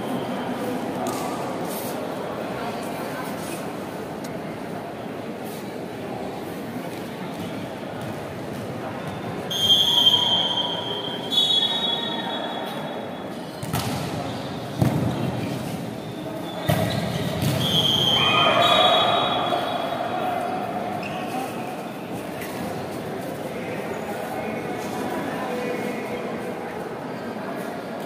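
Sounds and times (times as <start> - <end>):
referee's whistle: 9.5 - 12.6, 16.6 - 19.9
crowd shouting: 17.9 - 20.9.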